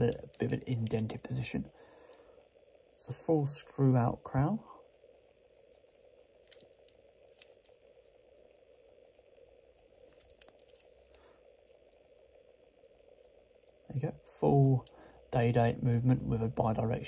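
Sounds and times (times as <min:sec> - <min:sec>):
watch crown clicks and rustles: 0:00.0 - 0:03.0, 0:04.8 - 0:13.9
faint steady hum: 0:00.0 - 0:17.0.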